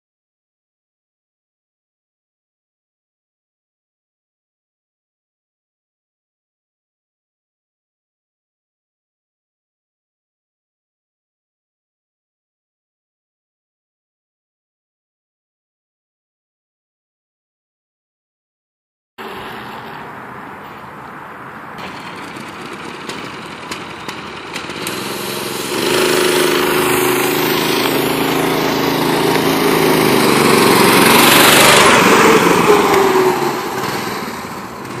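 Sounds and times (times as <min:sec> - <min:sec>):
small engine running under throttle: 0:21.8 - 0:35.0.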